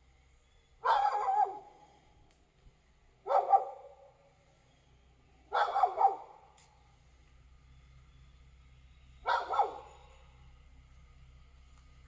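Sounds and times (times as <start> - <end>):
dog barking: 0.8 - 1.8, 3.2 - 4.1, 5.5 - 6.4, 9.2 - 10.1.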